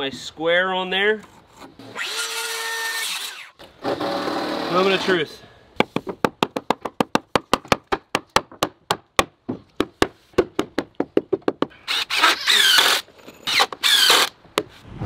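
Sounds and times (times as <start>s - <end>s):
cordless drill driving screw: 11.9s - 14.3s.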